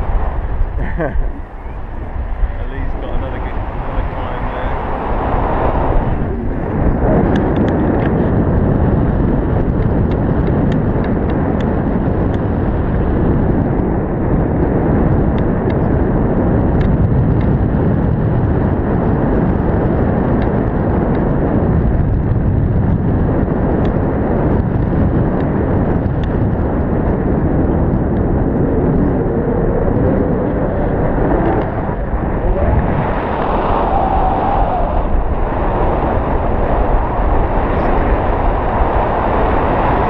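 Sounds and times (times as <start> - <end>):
wind rushing over microphone: 0.0 - 40.0.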